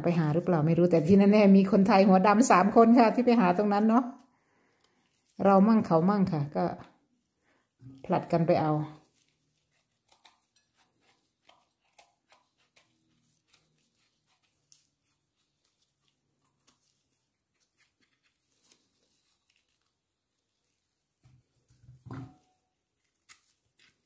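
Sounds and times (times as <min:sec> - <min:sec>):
knife scraping mushroom stem: 0:08.9 - 0:19.9, 0:22.2 - 0:24.0.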